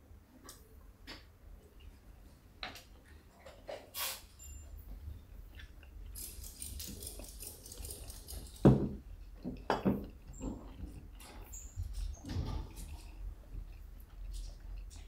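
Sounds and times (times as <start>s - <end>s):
person chewing food: 5.2s - 15.0s.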